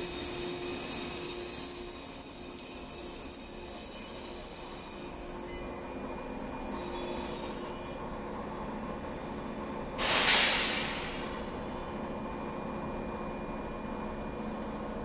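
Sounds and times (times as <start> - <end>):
train wheels squealing: 0.0 - 9.1, 12.2 - 15.0
loud hiss of air: 10.0 - 11.6.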